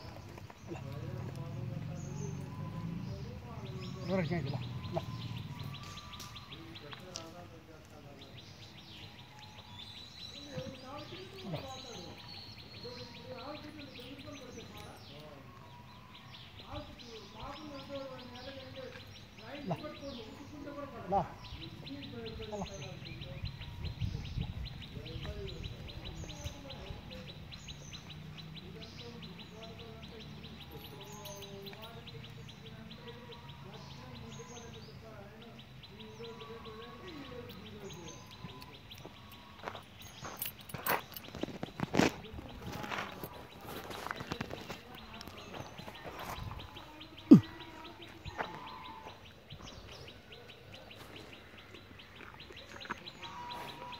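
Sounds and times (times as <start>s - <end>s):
rapid bird chirping: 0.0s - 53.9s
short bird calls: 35.9s - 53.9s.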